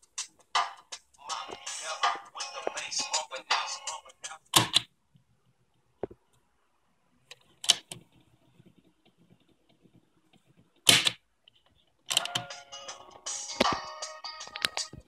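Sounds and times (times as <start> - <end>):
music from tape: 0.0 - 4.7, 12.2 - 15.0
cassette player buttons clacking: 12.1 - 12.5.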